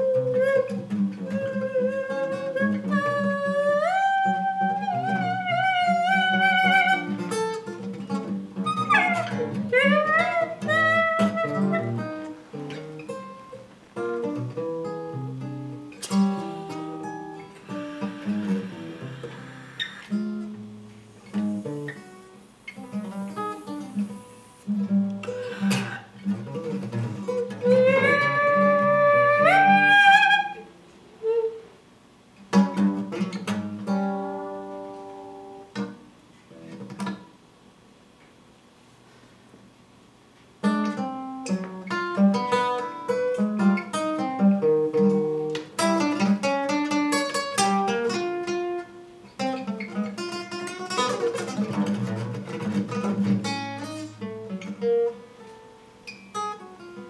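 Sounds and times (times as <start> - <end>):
acoustic guitar picking notes: 0.0 - 31.8, 32.5 - 37.4, 40.6 - 57.0
saxophone sliding tones: 16.1 - 26.1, 27.4 - 31.7.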